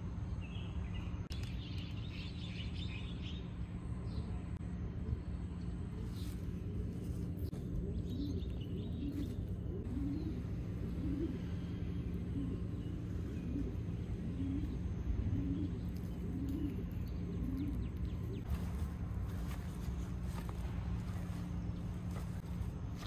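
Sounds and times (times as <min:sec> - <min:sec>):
low hum: 0:00.0 - 0:23.0
dove cooing: 0:05.0 - 0:18.5.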